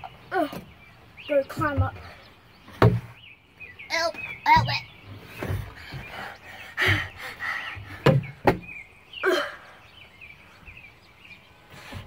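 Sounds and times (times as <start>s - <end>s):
knocks on wooden boards: 2.7s - 3.2s, 7.8s - 8.8s.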